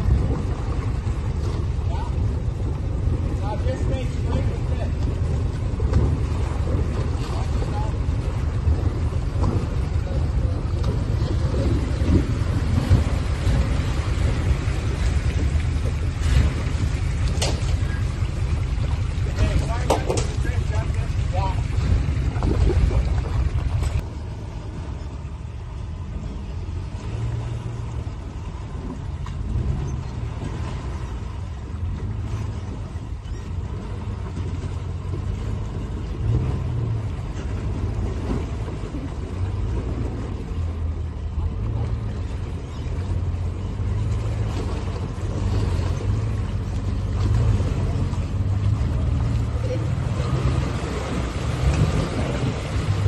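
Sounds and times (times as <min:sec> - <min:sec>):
truck engine running at low revs: 0:00.0 - 0:53.0.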